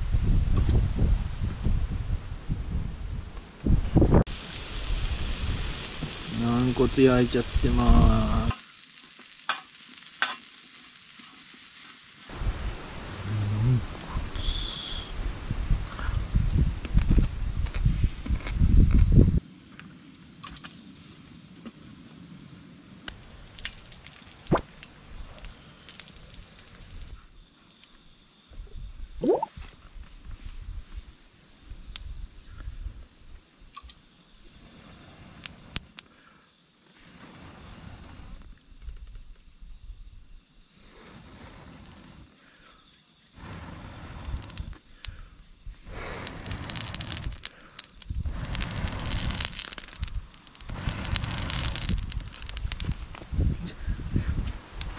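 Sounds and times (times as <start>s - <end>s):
fire crackling and popping: 0.4s - 28.4s, 29.2s - 54.9s
food sizzling and popping on grill: 3.6s - 20.9s, 22.9s - 28.0s, 33.7s - 36.2s, 40.6s - 54.9s
air puffs through metal pipe: 14.0s - 16.6s, 43.4s - 52.9s.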